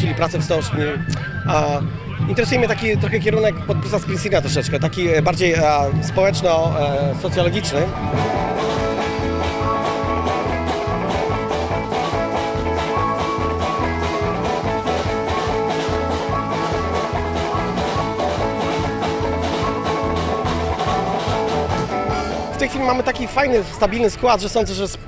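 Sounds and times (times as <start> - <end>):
folk band playing: 7.6 - 23.0.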